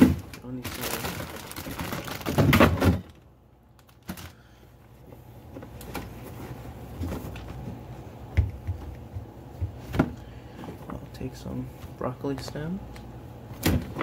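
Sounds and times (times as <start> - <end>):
plastic bags rustling: 0.0 - 7.8.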